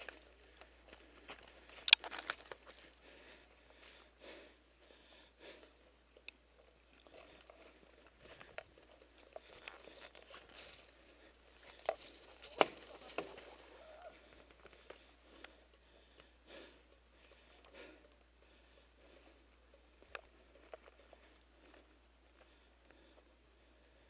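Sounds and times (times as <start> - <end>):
footsteps through dry scrub: 0.0 - 4.0, 6.9 - 15.8
twigs snapping: 1.7 - 2.8, 11.6 - 13.6.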